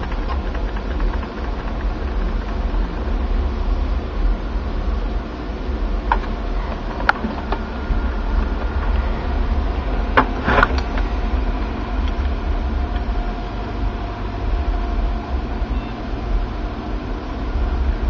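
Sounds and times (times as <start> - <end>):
sharp clicks: 0.0 - 3.0
computer cooling fans droning: 0.0 - 18.0.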